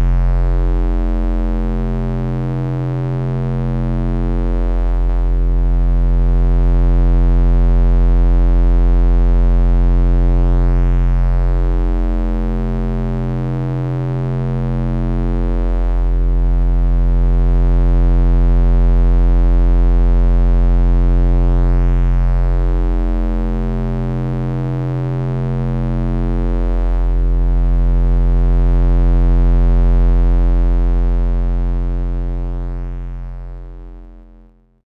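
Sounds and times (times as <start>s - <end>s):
synthesized deep bass drone: 0.0s - 34.8s.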